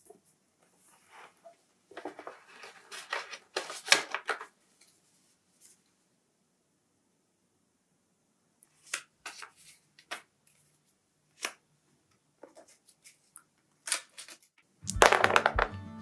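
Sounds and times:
paper money rustling: 2.0s - 4.6s, 12.5s - 15.4s.

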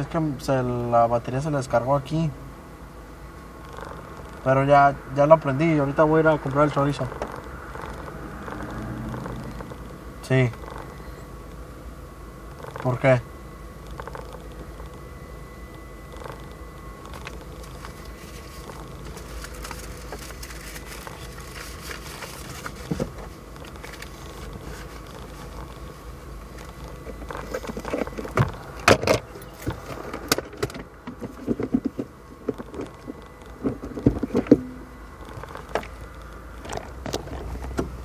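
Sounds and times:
steady low hum: 0.0s - 38.0s
clicks and rattles in car cabin: 26.5s - 38.0s.

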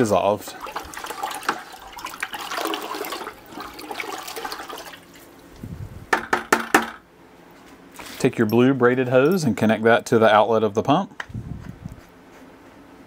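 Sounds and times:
water sloshing in bucket: 0.0s - 5.5s
sharp knocks: 6.1s - 7.0s.

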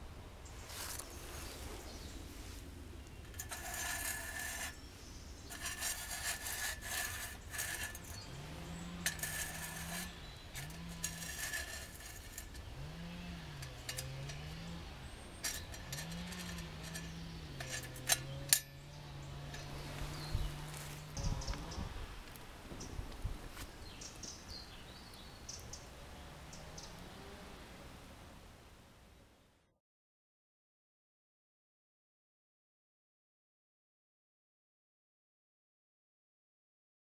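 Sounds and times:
wire scraping metal rim: 0.7s - 22.4s.

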